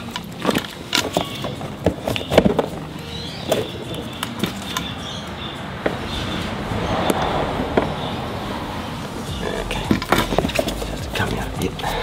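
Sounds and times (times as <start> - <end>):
metal steering parts knocking: 9.3 - 11.8.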